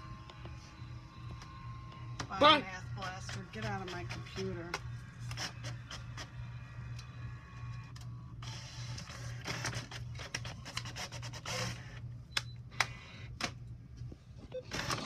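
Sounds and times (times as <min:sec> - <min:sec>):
printer whirring and rattling: 0:00.0 - 0:14.0, 0:14.6 - 0:15.0.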